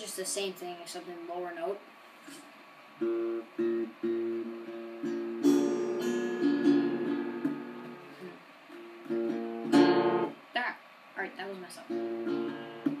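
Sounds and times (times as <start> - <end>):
acoustic guitar plucked notes: 3.0 - 10.4, 11.8 - 13.0
acoustic guitar strummed chords: 3.0 - 10.4, 11.9 - 13.0.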